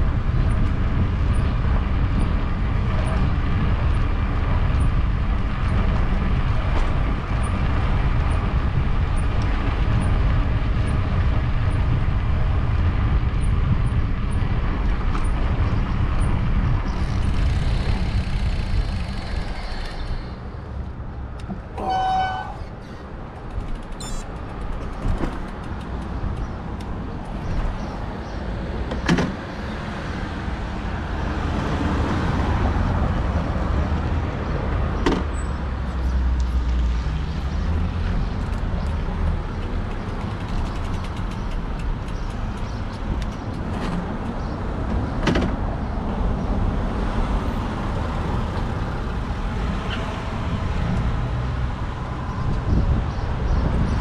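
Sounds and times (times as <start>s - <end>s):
street traffic rumble: 0.0s - 54.0s
short pitched beep: 21.8s - 22.7s.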